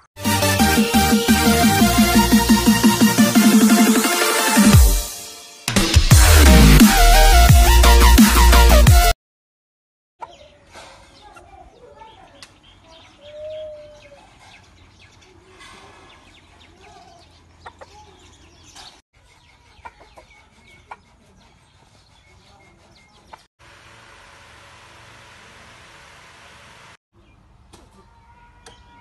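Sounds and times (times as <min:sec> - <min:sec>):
rooster clucking: 0:17.6 - 0:18.0, 0:19.7 - 0:21.1.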